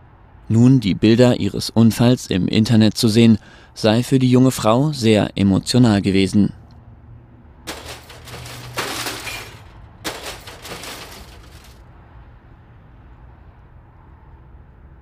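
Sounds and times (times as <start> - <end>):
vehicle crash: 7.7 - 11.8.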